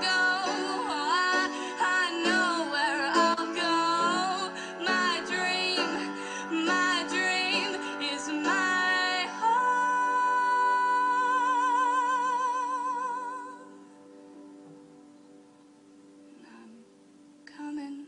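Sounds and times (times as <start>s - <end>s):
person singing with vibrato: 0.0s - 14.0s
soft sustained accompaniment: 0.0s - 18.0s.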